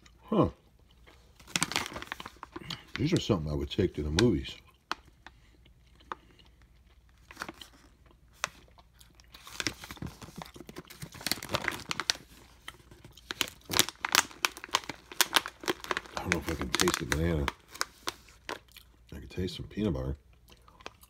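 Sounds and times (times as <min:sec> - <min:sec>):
plastic pouch crinkling: 0:01.2 - 0:05.4, 0:07.0 - 0:19.0.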